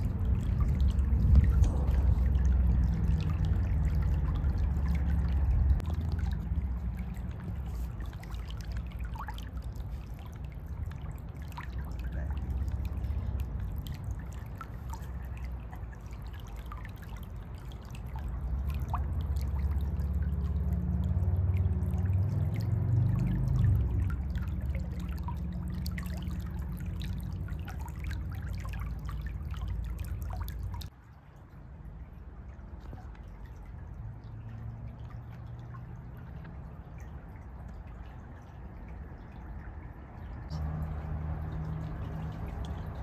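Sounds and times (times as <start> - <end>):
low rumble: 0.0 - 14.6
creek water trickling over rocks: 0.0 - 43.0
water drips and bubbles: 0.0 - 43.0.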